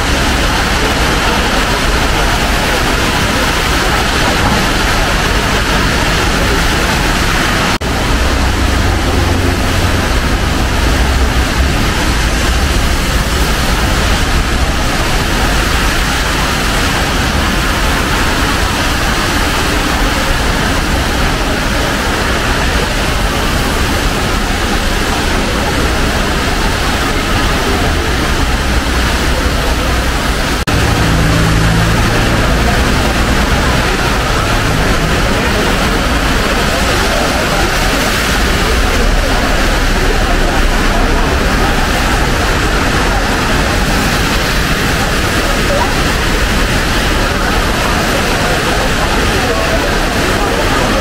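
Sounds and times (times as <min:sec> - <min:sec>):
low traffic rumble: 0:00.0 - 0:51.0
rain hiss: 0:00.0 - 0:51.0.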